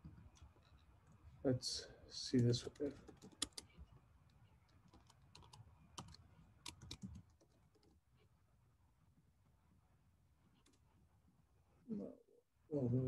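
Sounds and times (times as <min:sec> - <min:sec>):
typing on computer keyboard: 0:02.6 - 0:03.8, 0:04.8 - 0:08.0.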